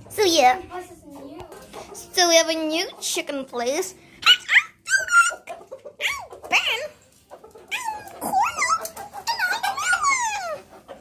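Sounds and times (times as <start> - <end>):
animal whining and whimpering: 4.2 - 6.9, 7.6 - 10.8.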